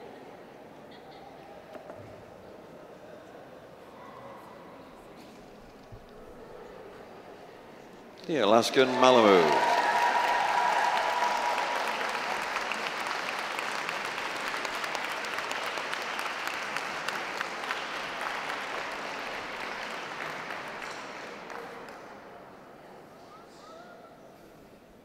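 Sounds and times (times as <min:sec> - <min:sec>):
crowd applauding: 0:08.4 - 0:22.3.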